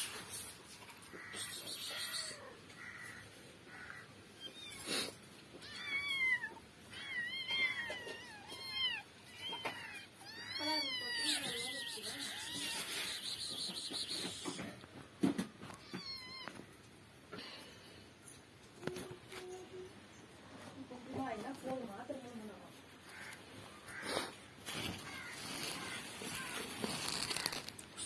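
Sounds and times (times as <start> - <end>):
kitten mewing: 4.5 - 14.8.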